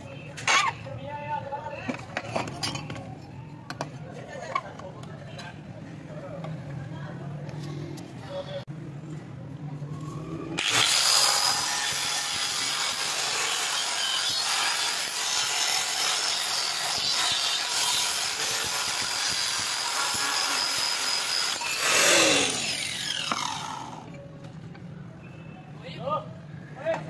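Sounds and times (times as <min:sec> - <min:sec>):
grinder spinning down whine: 0:10.2 - 0:14.9, 0:18.0 - 0:24.1
angle grinder grinding steel: 0:10.6 - 0:24.1.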